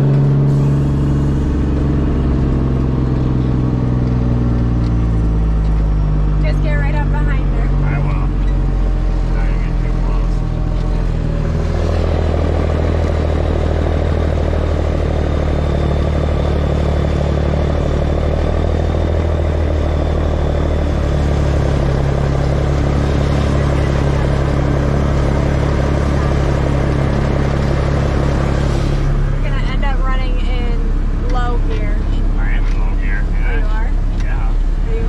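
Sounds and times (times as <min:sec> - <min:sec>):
truck engine running: 0:00.0 - 0:35.0.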